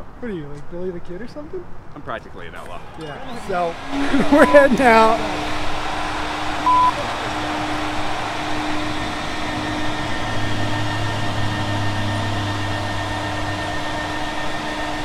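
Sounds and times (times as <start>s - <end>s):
air compressor humming: 2.8s - 15.0s
deeper hum: 3.8s - 15.0s
short beep: 4.0s - 5.1s, 6.6s - 7.0s.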